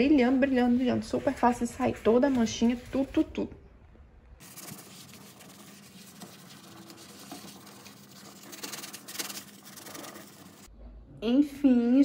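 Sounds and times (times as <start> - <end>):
scrubbing a stovetop: 0.1 - 3.2, 4.4 - 10.7.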